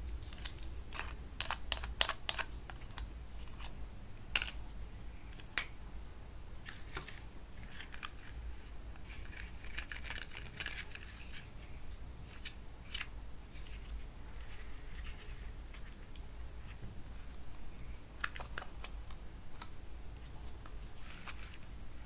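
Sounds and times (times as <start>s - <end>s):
scratchy rustling: 6.6s - 17.5s, 20.1s - 21.7s.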